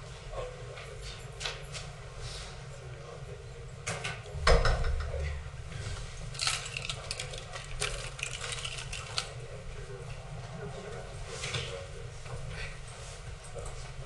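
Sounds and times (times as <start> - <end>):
loud thump: 4.4 - 5.2
clicks and knocks of handling: 6.4 - 9.4.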